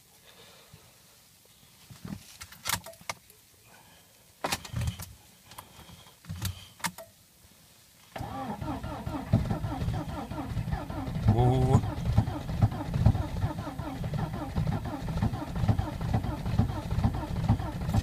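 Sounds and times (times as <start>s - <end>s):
starter motor cranking engine: 8.2s - 18.0s.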